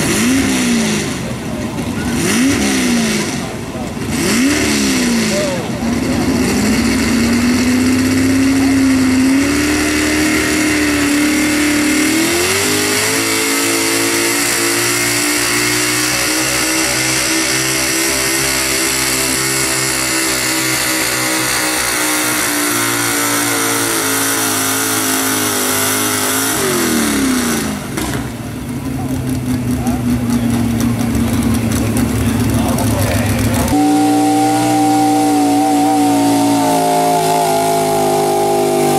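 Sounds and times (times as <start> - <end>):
truck engine revving under load: 0.0 - 38.9.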